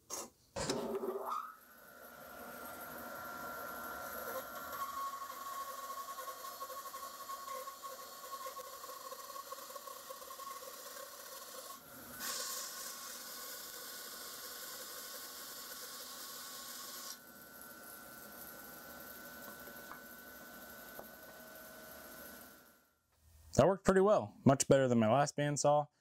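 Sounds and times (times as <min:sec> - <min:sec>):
bandsaw motor hum: 0:00.8 - 0:22.8
bandsaw cutting wood: 0:02.6 - 0:17.2.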